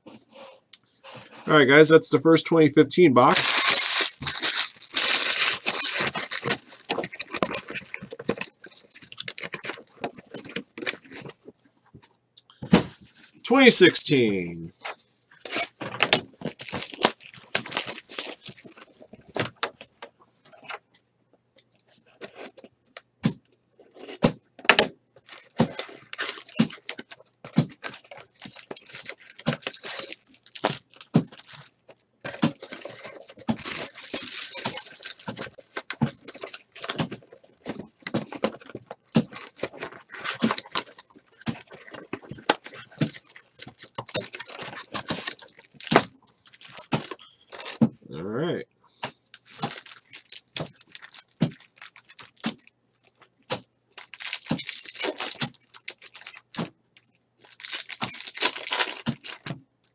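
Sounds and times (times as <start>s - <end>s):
card packs rustling and crinkling: 3.2s - 11.6s, 14.3s - 19.9s, 23.8s - 47.9s, 49.0s - 59.9s
cardboard box torn open: 3.4s - 11.1s, 15.4s - 18.7s.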